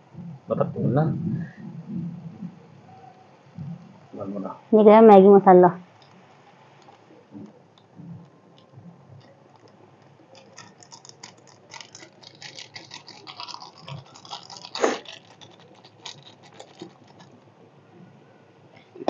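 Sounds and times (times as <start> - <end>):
foil sachet crinkling: 9.2 - 17.5.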